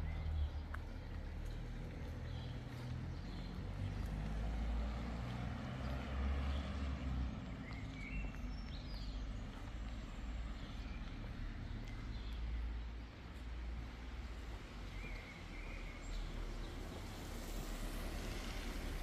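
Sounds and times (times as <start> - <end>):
low street rumble: 0.0 - 19.0.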